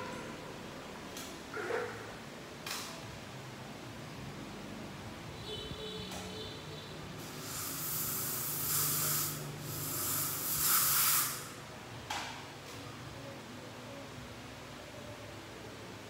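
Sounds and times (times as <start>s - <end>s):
short air puff: 7.2s - 11.5s
air syringe hissing bursts: 7.2s - 11.6s.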